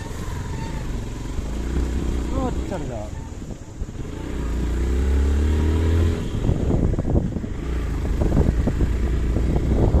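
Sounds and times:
motorcycle engine running: 0:00.0 - 0:10.0
wind noise on microphone: 0:03.1 - 0:10.0.

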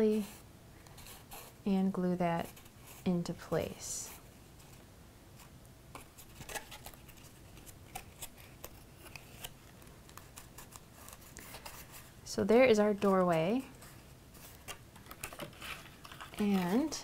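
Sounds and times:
cardstock clicks and rustles: 0:05.9 - 0:12.1, 0:12.9 - 0:17.0.

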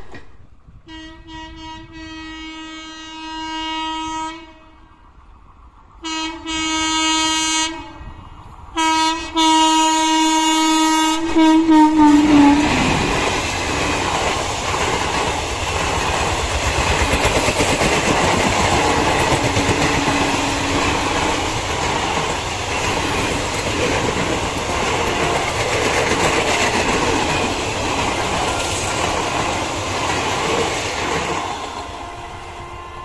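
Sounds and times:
train wheels clattering over rails: 0:12.6 - 0:32.2.

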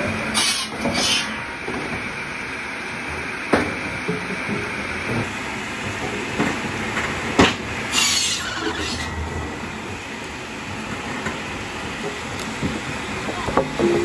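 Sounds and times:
saw blade cutting wood: 0:00.3 - 0:01.4, 0:07.9 - 0:09.2.

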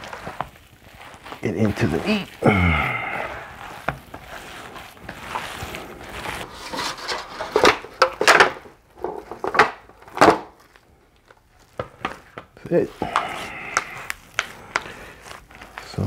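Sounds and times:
hands squishing meat: 0:00.0 - 0:08.0, 0:09.8 - 0:16.0
bowl scraping and knocking on foil pan: 0:03.7 - 0:10.7.

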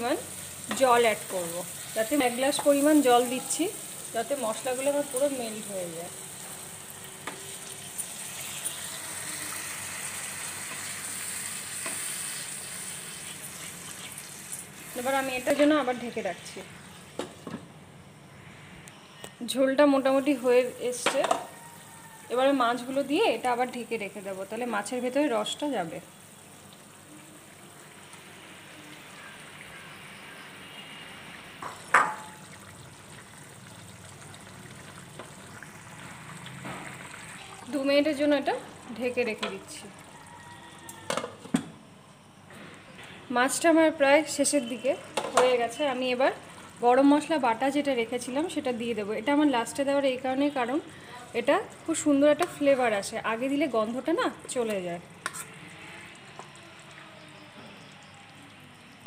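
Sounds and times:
water sizzling in hot oil: 0:00.0 - 0:17.2, 0:20.0 - 0:41.1, 0:44.4 - 0:59.0
gravy bubbling in a frying pan: 0:25.4 - 0:41.0, 0:45.1 - 0:47.5, 0:53.9 - 0:59.0.

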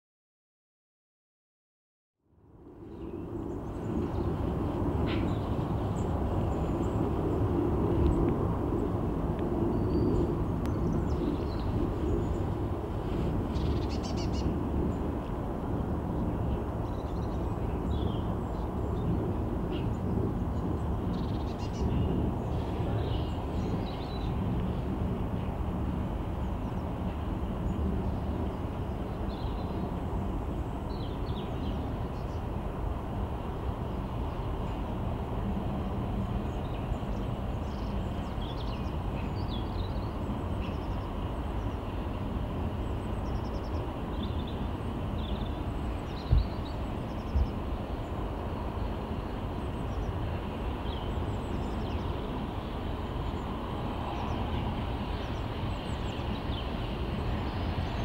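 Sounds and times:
distant steam locomotive rumble: 0:02.5 - 0:58.0
small birds chirping: 0:26.4 - 0:32.5.

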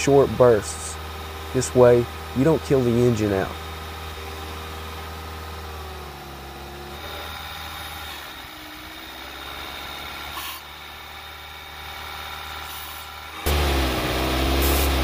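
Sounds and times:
car engine idling: 0:00.0 - 0:15.0
spray hiss: 0:14.5 - 0:15.0.

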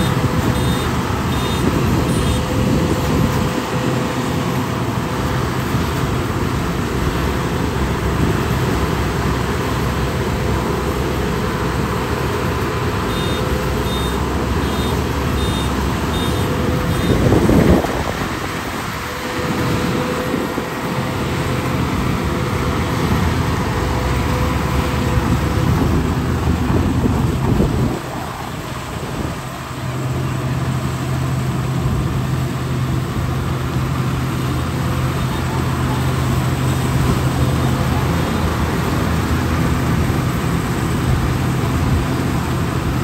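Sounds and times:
combine harvester droning: 0:00.0 - 0:43.0.

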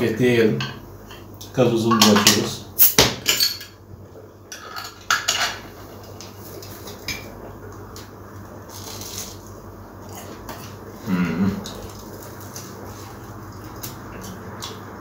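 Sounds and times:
crunching of fried bread chewed: 0:07.8 - 0:15.0.

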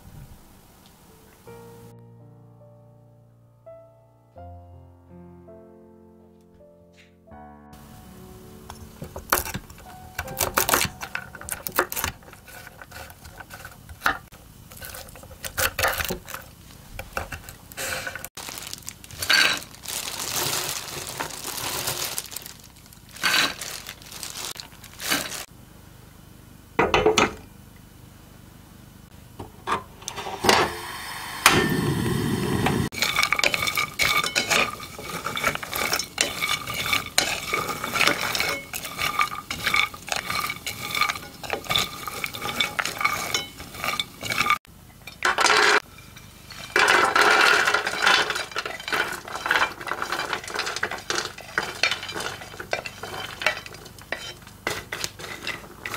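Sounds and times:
nuts rattling and scraping in pot: 0:08.7 - 0:25.5, 0:32.9 - 0:55.9.

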